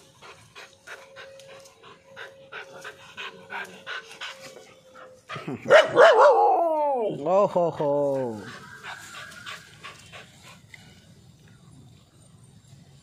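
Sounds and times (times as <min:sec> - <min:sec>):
dog panting: 0:00.0 - 0:05.5, 0:08.3 - 0:11.0.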